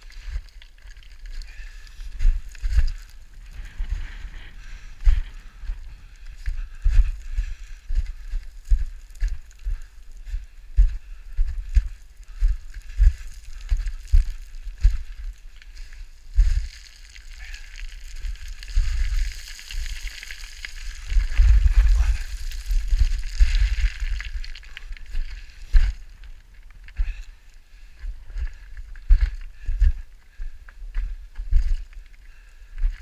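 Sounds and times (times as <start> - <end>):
footsteps crunching on scree: 0.0 - 33.0
stones sliding and rattling: 16.5 - 26.7.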